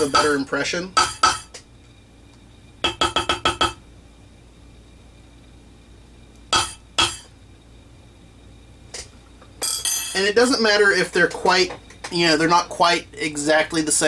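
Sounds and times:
mallet striking metal stamp: 1.0s - 1.6s, 6.6s - 7.3s.

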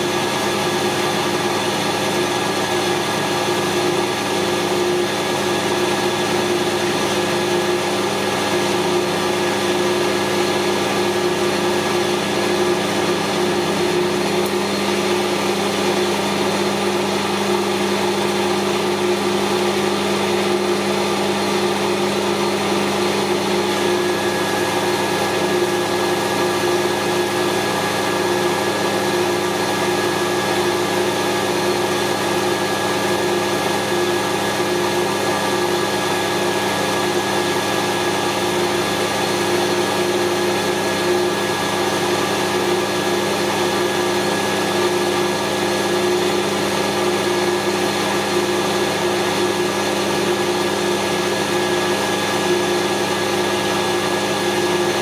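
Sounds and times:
metal lathe humming: 2.0s - 44.0s.

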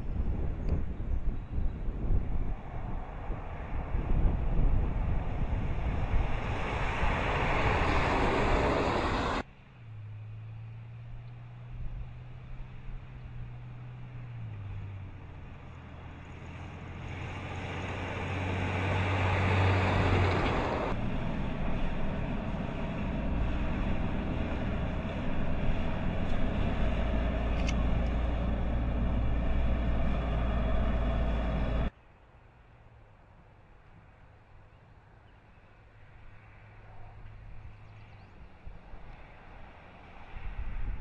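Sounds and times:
truck engine hum: 0.0s - 31.9s
tyre and road noise: 0.0s - 41.0s.

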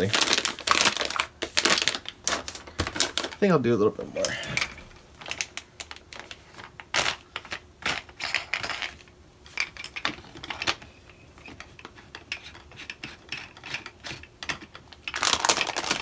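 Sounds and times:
plastic bag crinkling: 0.0s - 3.8s, 4.4s - 8.9s, 15.0s - 16.0s.

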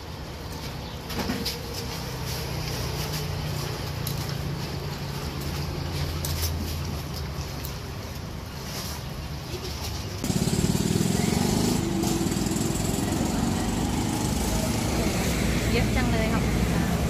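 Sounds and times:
vehicle engine humming: 9.2s - 17.0s.

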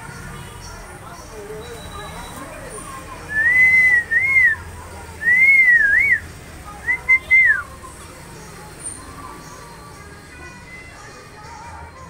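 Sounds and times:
bird whistling: 3.3s - 4.6s, 5.2s - 6.2s, 6.8s - 7.7s.

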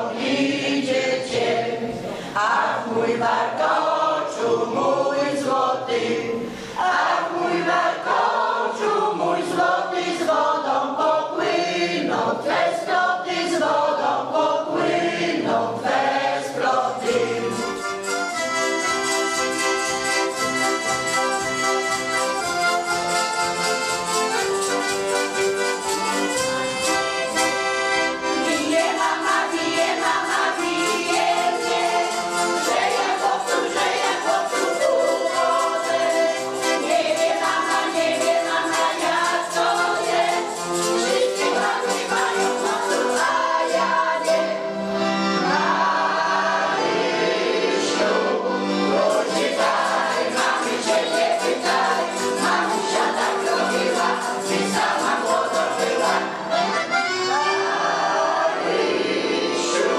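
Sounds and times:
women's choir singing in unison: 0.0s - 18.0s, 28.2s - 59.9s
instrument playing held chords: 17.1s - 47.4s.

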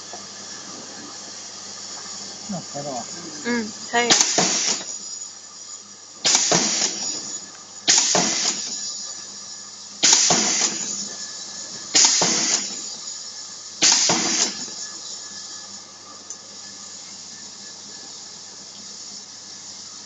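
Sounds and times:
pneumatic press air bursts: 3.9s - 5.2s, 6.2s - 9.2s, 9.9s - 15.4s.

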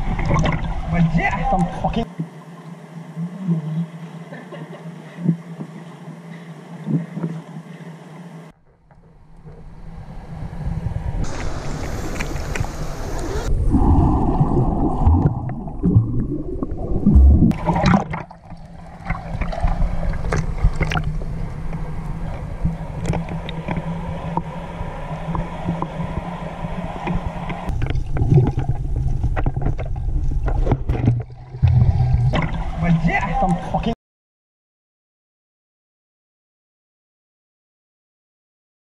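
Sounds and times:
water sloshing and gurgling: 0.0s - 3.2s, 8.5s - 33.9s.

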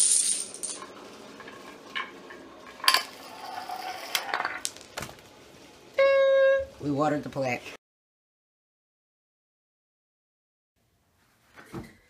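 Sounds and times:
marble rolling down wooden ramps: 0.0s - 5.1s.

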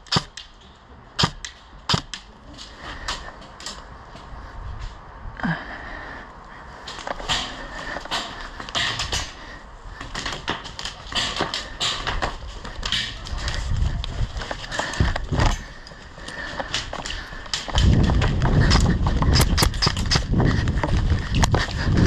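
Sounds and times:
sharp clicks and knocks: 0.0s - 2.3s, 14.4s - 22.0s
footsteps: 6.8s - 22.0s
gear rattling: 10.3s - 22.0s.

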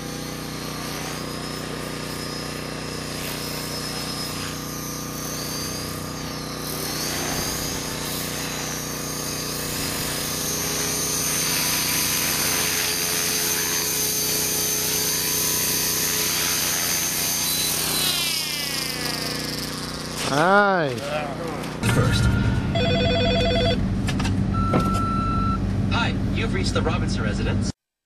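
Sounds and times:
model helicopter motor whine: 0.0s - 21.8s.

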